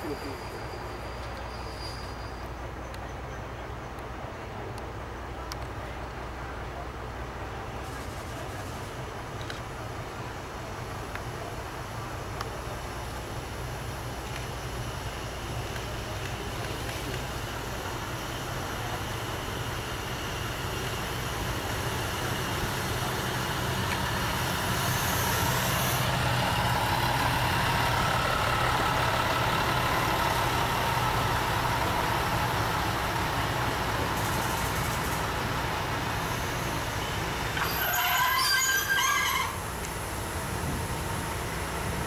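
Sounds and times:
diesel engine rumble: 0.0 - 42.0
train horn: 37.6 - 39.6.

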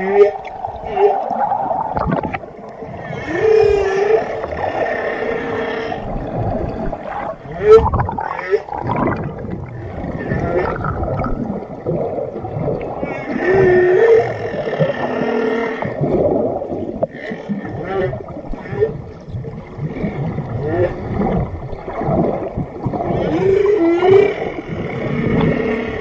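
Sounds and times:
whale moans and squeals: 0.0 - 11.6, 12.8 - 16.2, 22.8 - 26.0.

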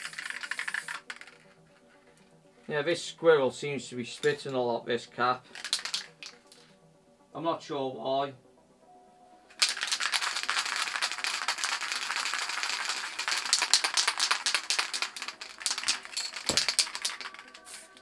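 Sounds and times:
aerosol spray can hissing: 0.0 - 1.4, 9.6 - 18.0.

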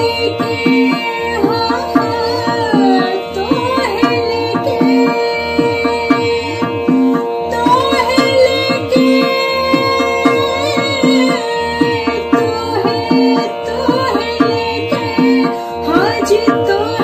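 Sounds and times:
tabla drumming: 0.0 - 17.0
woman singing semi-classical vocal: 0.0 - 17.0.

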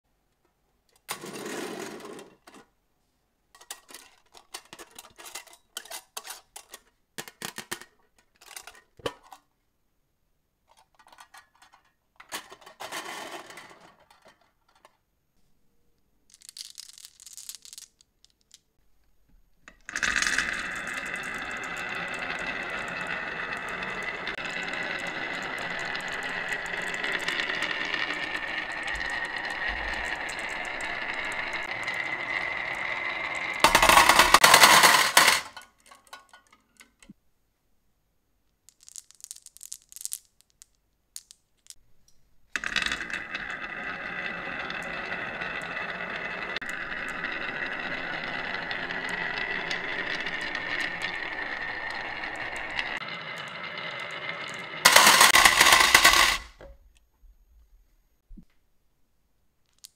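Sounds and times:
marbles rolling down wooden track: 1.1 - 2.5, 12.4 - 14.9, 16.3 - 18.6, 19.7 - 36.4, 38.7 - 41.8, 42.6 - 56.6
marbles clattering into tin: 10.9 - 14.9, 16.3 - 18.6, 19.8 - 36.5, 38.7 - 41.8, 42.6 - 56.6, 59.6 - 59.9
marbles clicking in hand: 16.3 - 18.7, 38.7 - 41.8.

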